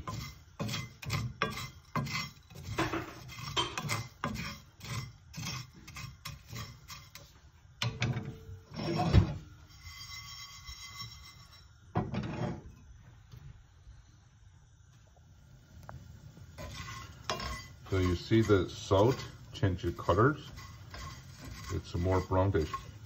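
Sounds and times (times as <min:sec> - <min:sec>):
wooden spatula scraping a skillet: 0:00.0 - 0:12.8, 0:15.7 - 0:23.0
peppercorns rattling in a pan: 0:16.6 - 0:23.0.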